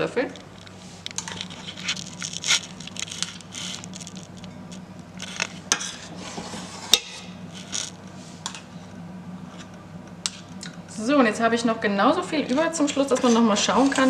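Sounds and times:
spoon scraping a pot: 0:12.9 - 0:14.0.

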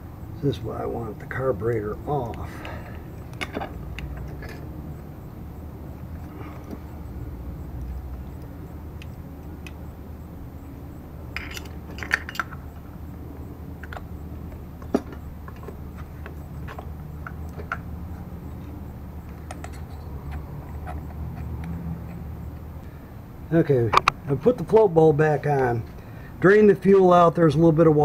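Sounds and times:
steady low hum: 0:00.0 - 0:28.0
small metallic clicks and clinks: 0:11.3 - 0:12.7, 0:14.8 - 0:22.3.

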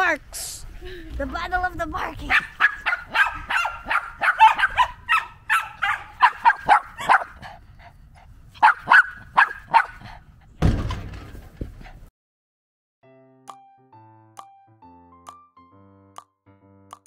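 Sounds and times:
dog yipping: 0:02.3 - 0:07.4, 0:08.6 - 0:10.0.

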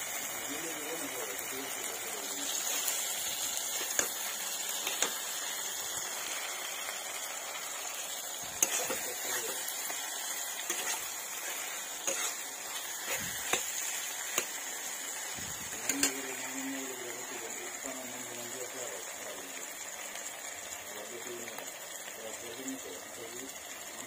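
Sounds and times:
food sizzling in a pan: 0:00.0 - 0:24.0
metal spatula scraping pan: 0:08.6 - 0:10.0, 0:10.6 - 0:14.5.

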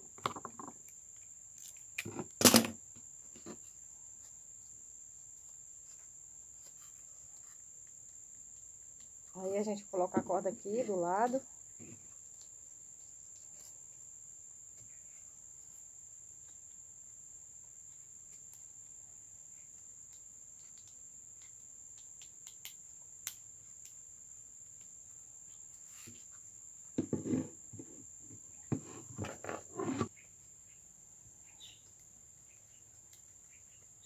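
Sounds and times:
crickets trilling: 0:00.0 - 0:34.0
faint clicks of handled stalk: 0:19.8 - 0:24.0.

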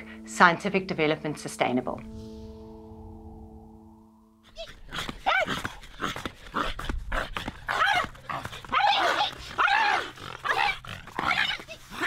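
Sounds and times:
people imitating dog yelps: 0:04.5 - 0:12.0.

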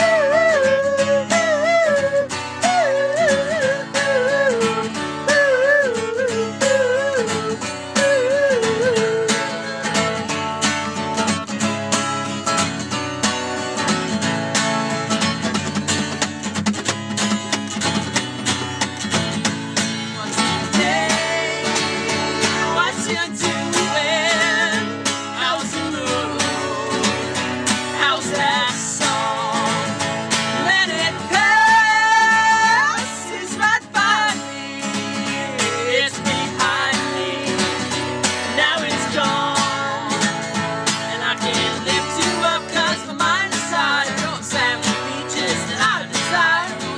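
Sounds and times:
person singing: 0:00.0 - 0:10.3, 0:20.1 - 0:46.9
strummed acoustic guitars: 0:00.0 - 0:46.9.

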